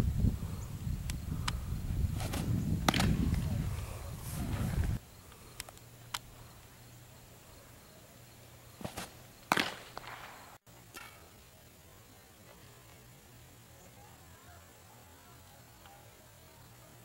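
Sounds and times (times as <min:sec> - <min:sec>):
ball popping into a mitt: 0:02.2 - 0:03.3, 0:08.8 - 0:10.3
cleats scuffing dirt: 0:02.2 - 0:03.4, 0:08.8 - 0:10.4.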